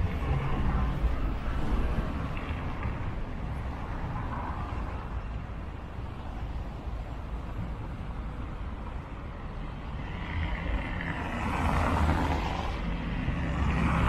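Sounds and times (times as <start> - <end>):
cars driving past on wet road: 9.8 - 14.0.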